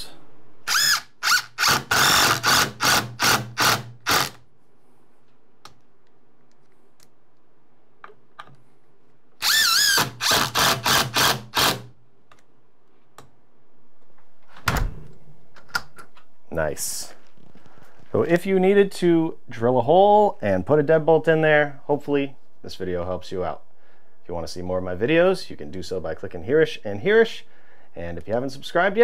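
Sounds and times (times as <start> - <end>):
impact driver bursts: 0.7 - 4.4, 9.4 - 11.9.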